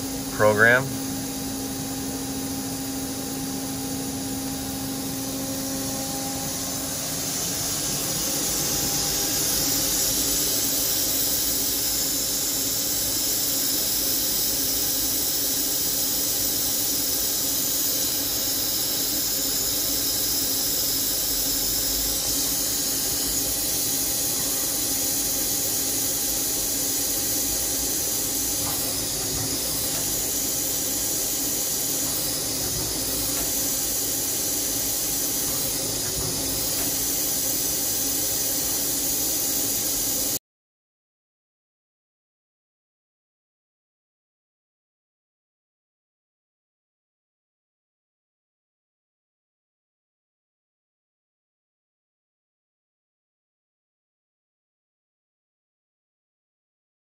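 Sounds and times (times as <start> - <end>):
machine high hiss: 5.4 - 40.4.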